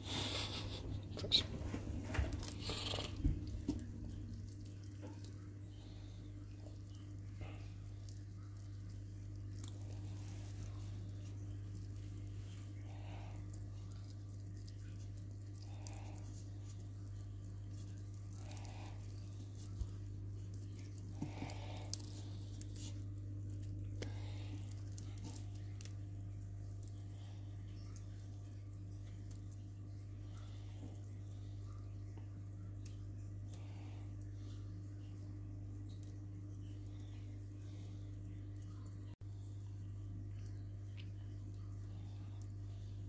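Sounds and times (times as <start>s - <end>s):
cat chewing wetly: 0.0s - 39.2s
low hum: 0.0s - 43.0s
meat tearing: 6.7s - 29.9s.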